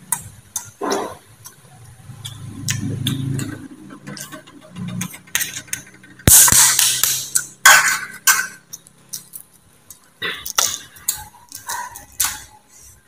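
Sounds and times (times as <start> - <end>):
man chewing wetly: 0.0 - 4.4, 8.7 - 12.9
loud crackling clatter: 2.6 - 8.1.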